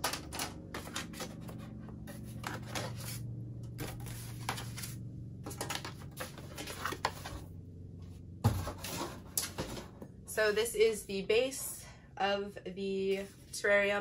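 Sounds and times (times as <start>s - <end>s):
plastic panels clicking and rattling: 0.0s - 1.7s.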